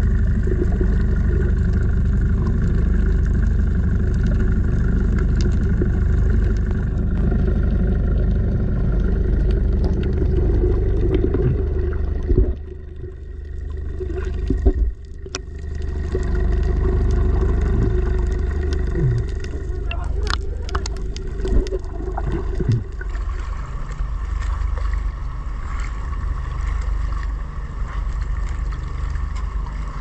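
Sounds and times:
boat engine hum underwater: 0:00.0 - 0:30.0
faint clicks: 0:18.1 - 0:21.9.

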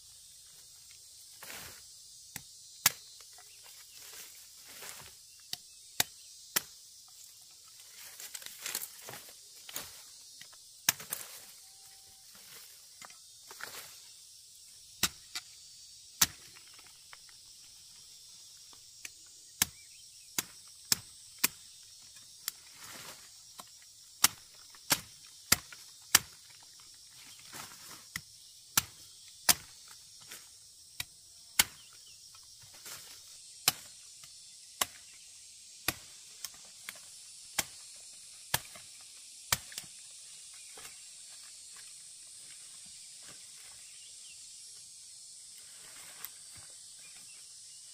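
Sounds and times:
high insect hiss: 0:00.0 - 0:47.9
machete chopping: 0:02.3 - 0:03.3, 0:04.8 - 0:06.8, 0:10.8 - 0:11.5, 0:15.0 - 0:15.5, 0:16.2 - 0:16.9, 0:20.4 - 0:21.7, 0:23.6 - 0:26.6, 0:27.6 - 0:30.4, 0:31.0 - 0:31.9, 0:33.6 - 0:35.2, 0:35.8 - 0:40.0.

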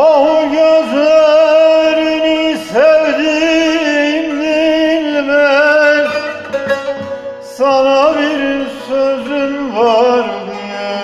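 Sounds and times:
man singing with vibrato: 0:00.0 - 0:11.0
long-necked lute playing: 0:03.0 - 0:11.0.

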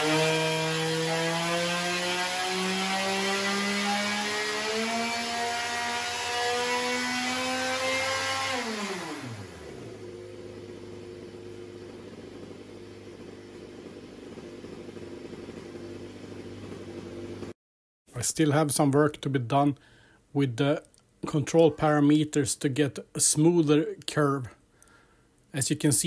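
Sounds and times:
kart engine at high revs: 0:00.0 - 0:17.6
engine idling: 0:09.0 - 0:17.5.

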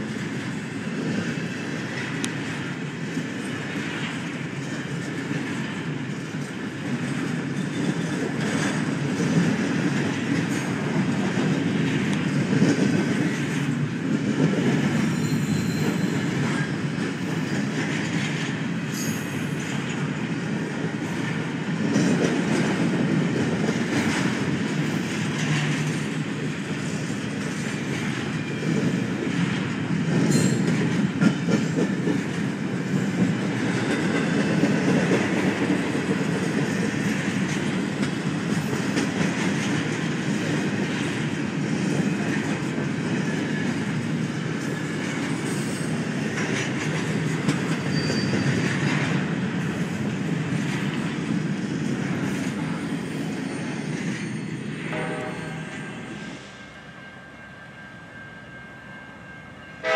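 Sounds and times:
train wheels rumbling on rail: 0:00.0 - 0:59.9
high wheel squeals: 0:15.1 - 0:16.3, 0:47.8 - 0:48.7, 0:52.7 - 0:59.8
clatter over rail joints: 0:21.2 - 0:52.8.

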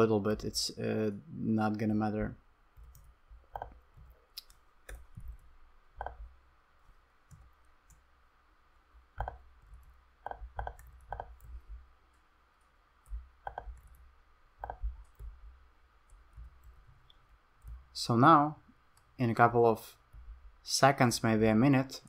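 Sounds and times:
mouse and keyboard clicking: 0:02.8 - 0:06.3, 0:09.2 - 0:12.2, 0:13.0 - 0:14.0, 0:14.6 - 0:15.4
soft low thumps: 0:04.9 - 0:06.5, 0:08.9 - 0:12.0, 0:13.0 - 0:18.0, 0:20.0 - 0:20.6.

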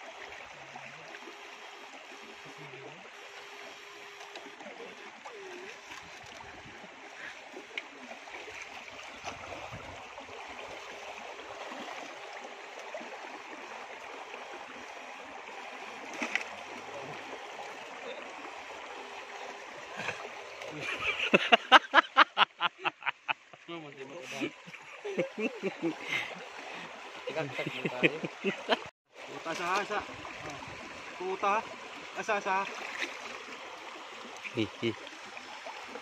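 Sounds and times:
river water flowing and splashing: 0:00.0 - 0:36.0.

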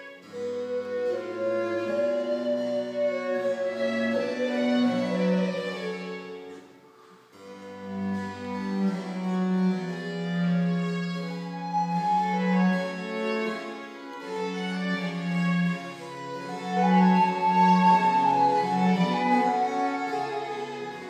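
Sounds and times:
baroque chamber music: 0:00.0 - 0:21.0.

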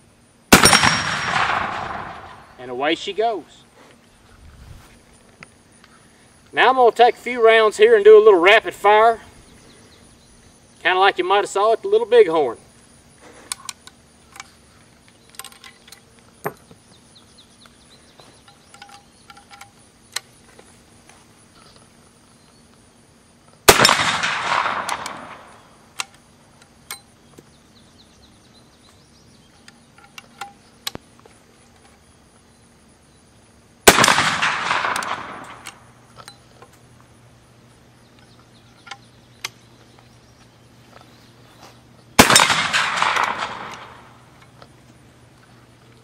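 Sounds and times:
rifle shots with echo: 0:00.5 - 0:02.6, 0:23.7 - 0:25.7, 0:33.8 - 0:35.9, 0:42.2 - 0:44.2.

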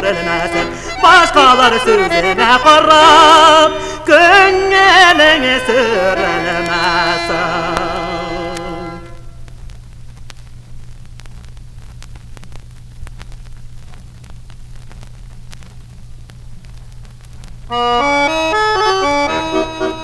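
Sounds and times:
accordion melody: 0:00.0 - 0:09.3, 0:17.7 - 0:20.0
vinyl record crackle: 0:00.0 - 0:20.0.

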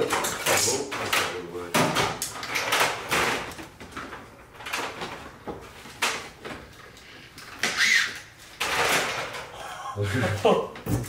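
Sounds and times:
plastic parts scraping and rattling: 0:00.0 - 0:09.5
plastic squeak: 0:07.6 - 0:08.3.

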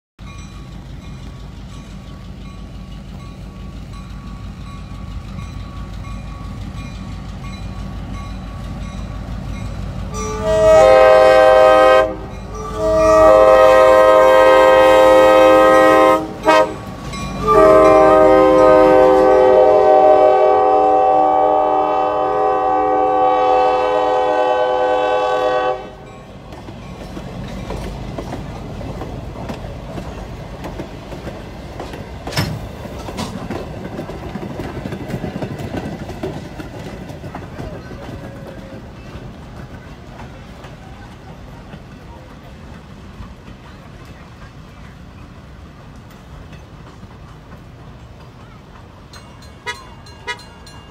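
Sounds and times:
train wheels clattering on rails: 0:00.2 - 0:21.5, 0:22.9 - 0:50.9
locomotive rumble: 0:00.2 - 0:50.9
locomotive air horn: 0:10.1 - 0:26.1.

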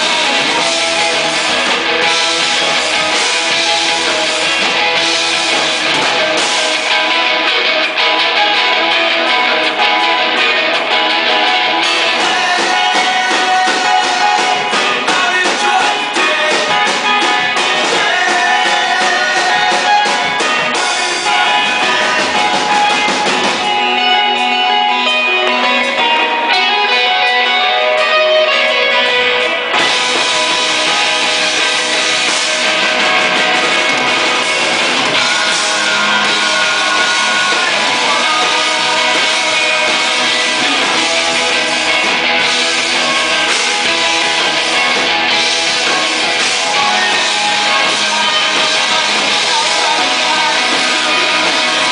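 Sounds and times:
drums: 0:00.0 - 0:51.9
electric guitars: 0:00.0 - 0:51.9
people singing: 0:11.8 - 0:23.8, 0:33.1 - 0:51.9.

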